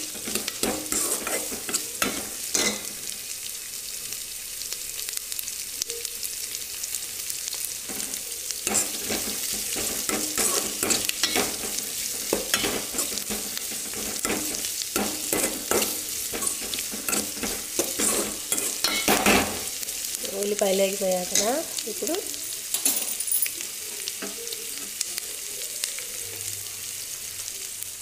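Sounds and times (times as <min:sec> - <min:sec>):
ladle scraping metal pot: 0:00.0 - 0:02.9, 0:07.9 - 0:19.7
onions sizzling in oil: 0:00.0 - 0:28.0.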